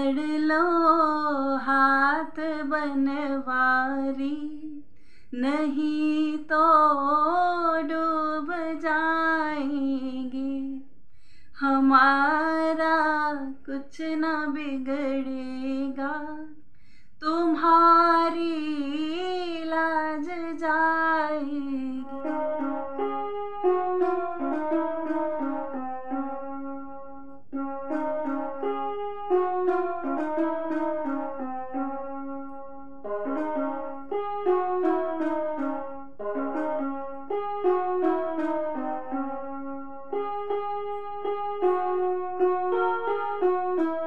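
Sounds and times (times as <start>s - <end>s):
woman singing devotional melody: 0.0s - 16.6s, 17.2s - 22.8s
keyboard melody: 18.0s - 44.0s.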